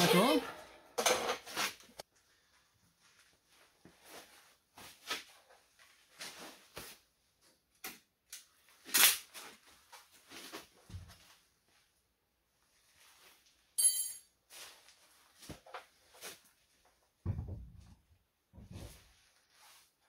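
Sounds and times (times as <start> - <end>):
short metallic ring: 13.8 - 14.3.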